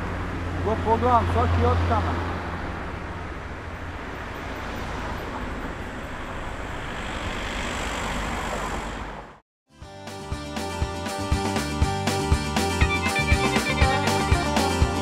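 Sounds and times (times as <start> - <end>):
passing cars: 0.0 - 9.4.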